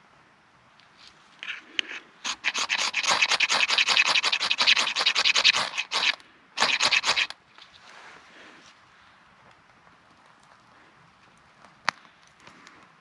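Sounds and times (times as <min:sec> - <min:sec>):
knife scraping ferrocerium rod: 0:01.4 - 0:07.3.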